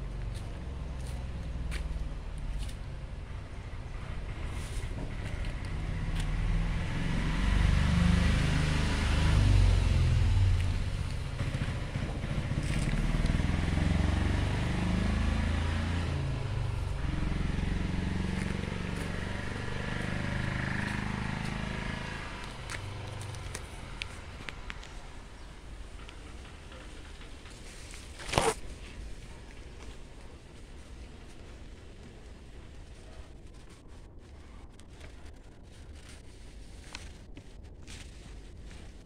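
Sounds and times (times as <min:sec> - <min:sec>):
vehicle engine revving: 0:03.9 - 0:24.7.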